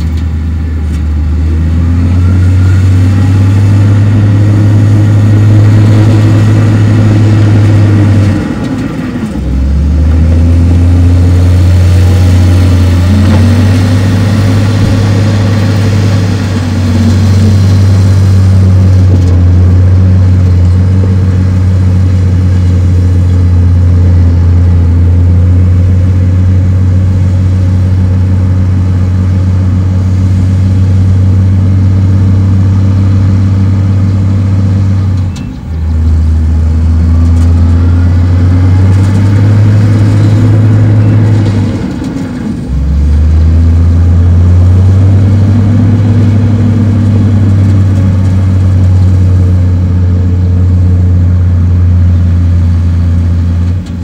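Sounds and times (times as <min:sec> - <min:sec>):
heavy diesel machinery engine drone: 0:00.0 - 0:54.0.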